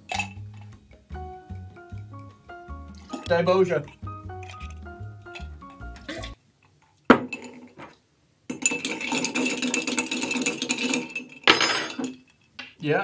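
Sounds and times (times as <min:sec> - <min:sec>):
background music: 0:00.0 - 0:06.4
spoon stirring ice in glass: 0:00.1 - 0:00.7, 0:03.9 - 0:06.4, 0:08.5 - 0:11.4.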